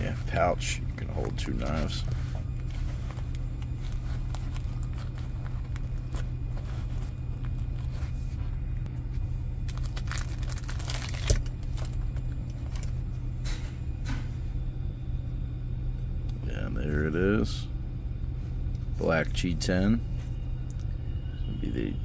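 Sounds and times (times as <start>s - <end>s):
plastic sleeve crinkling: 0.0s - 8.5s, 9.6s - 13.0s
steady low rumble: 0.0s - 22.0s.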